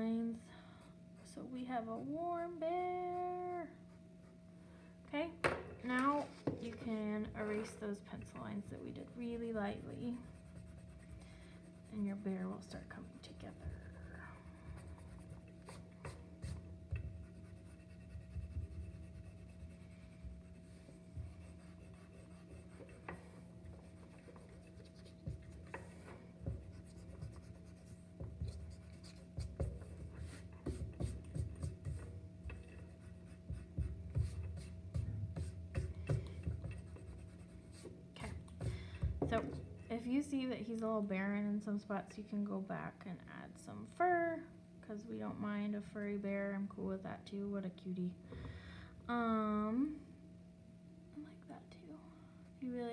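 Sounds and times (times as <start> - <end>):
eraser rubbing on paper: 9.5 - 38.7.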